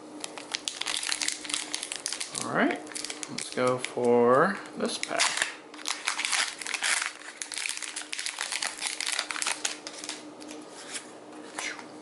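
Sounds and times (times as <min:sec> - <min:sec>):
foil wrapper crinkling: 0:00.2 - 0:11.0.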